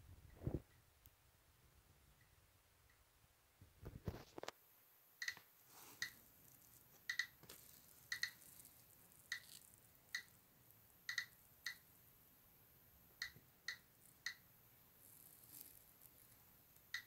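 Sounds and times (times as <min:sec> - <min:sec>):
geiger counter clicking: 0:05.2 - 0:06.2, 0:07.0 - 0:07.4, 0:08.0 - 0:08.5, 0:09.3 - 0:10.3, 0:11.0 - 0:11.8, 0:13.2 - 0:14.5.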